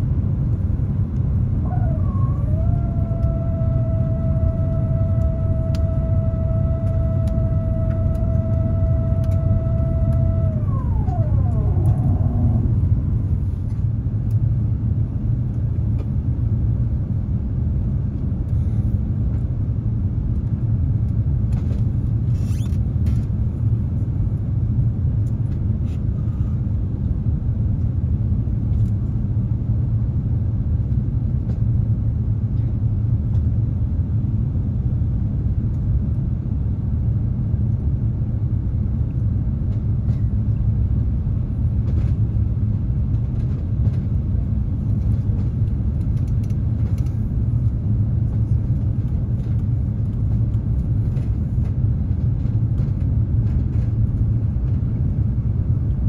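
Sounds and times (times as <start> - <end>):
steady whine: 0.0 - 28.9
aircraft cabin engine rumble: 0.0 - 56.0.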